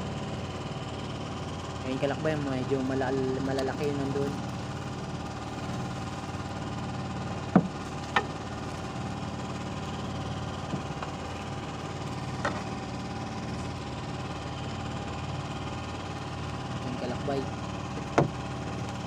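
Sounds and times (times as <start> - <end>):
boat engine running: 0.0 - 19.0
sharp knocks: 7.5 - 8.3, 18.0 - 18.4.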